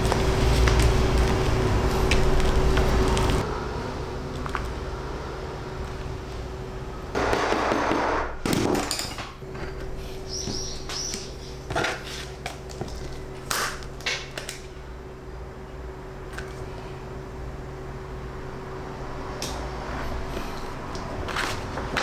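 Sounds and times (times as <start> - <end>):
plastic sheet rustling and crinkling: 0.0 - 3.4.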